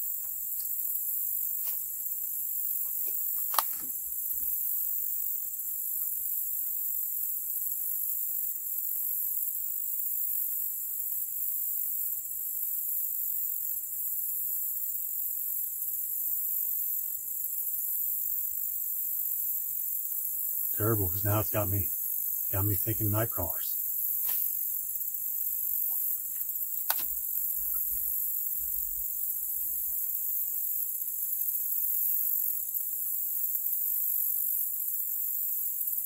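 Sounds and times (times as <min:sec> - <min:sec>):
insects chirping: 0:00.0 - 0:36.0
sharp clicks: 0:26.8 - 0:27.1.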